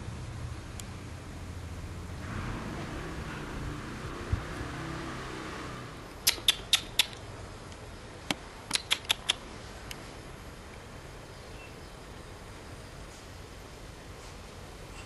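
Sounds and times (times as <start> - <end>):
steady outdoor hiss: 0.0 - 15.0
sharp mechanical clicks: 6.2 - 7.2, 8.7 - 10.0.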